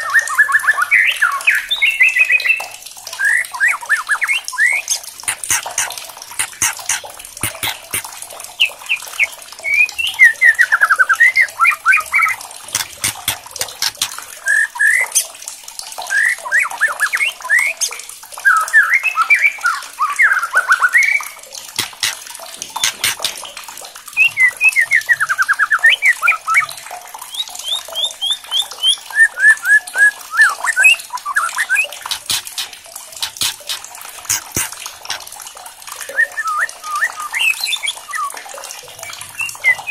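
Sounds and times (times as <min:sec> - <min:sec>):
sharp dry bird clicks: 0:05.2 - 0:08.1, 0:12.7 - 0:14.3, 0:21.8 - 0:23.5, 0:32.0 - 0:35.2.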